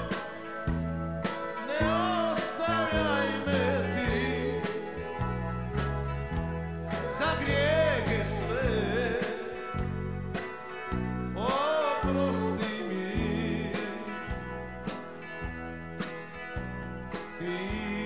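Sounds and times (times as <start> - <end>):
live band music: 0.0 - 18.0
man singing with vibrato: 1.4 - 5.4, 6.9 - 9.9, 11.4 - 14.4, 17.4 - 18.0.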